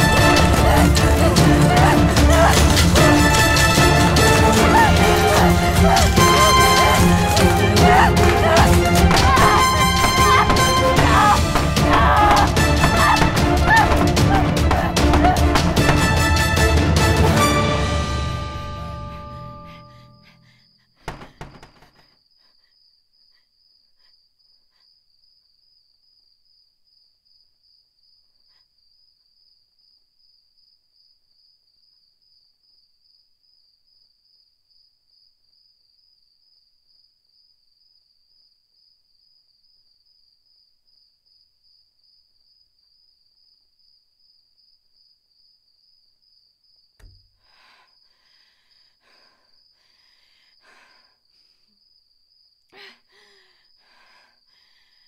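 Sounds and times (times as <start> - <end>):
dull thud: 21.1 - 22.0.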